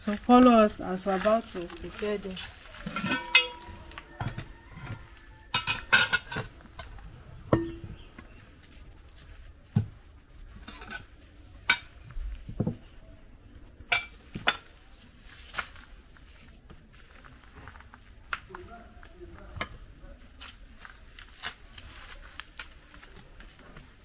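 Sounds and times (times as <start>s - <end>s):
dishes and knife clinking: 2.8s - 6.9s, 7.5s - 8.0s, 13.9s - 14.7s.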